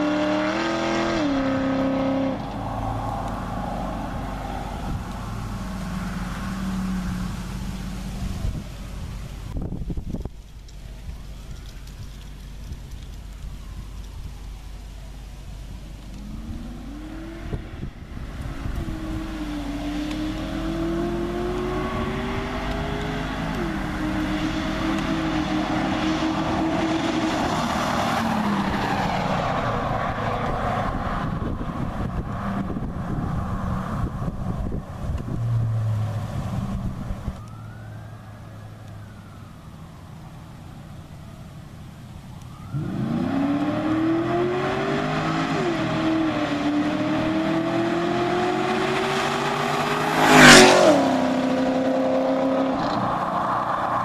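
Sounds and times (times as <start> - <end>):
car passing close: 0.0 - 10.3, 15.8 - 39.7, 42.5 - 54.0
car engine exhaust revving: 15.9 - 37.6.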